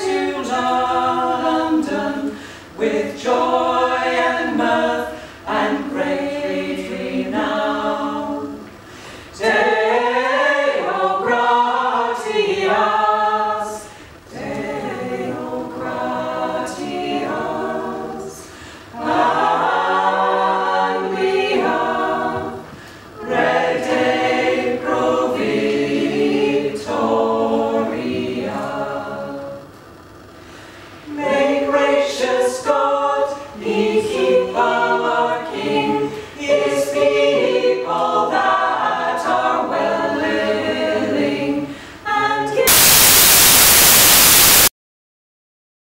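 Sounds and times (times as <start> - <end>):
mixed choir singing a cappella: 0.0 - 29.7, 30.7 - 43.9.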